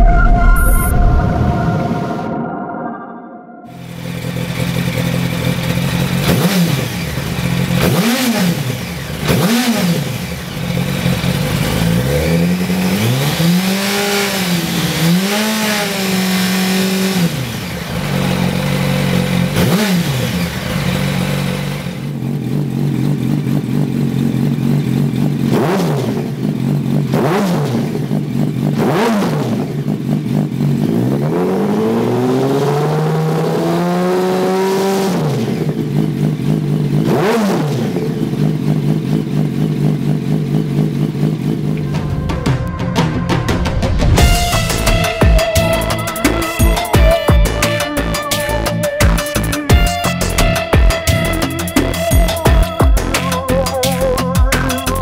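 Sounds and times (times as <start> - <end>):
motorcycle engine idling and revving: 3.7 - 55.0.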